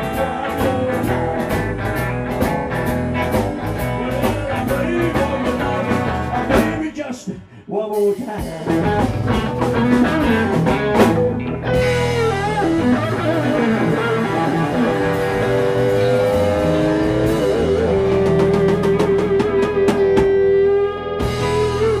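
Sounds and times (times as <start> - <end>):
bass line: 0.0 - 7.0, 8.4 - 22.0
live rock band playing: 0.0 - 7.0, 7.9 - 22.0
lead guitar wavering notes: 9.2 - 22.0.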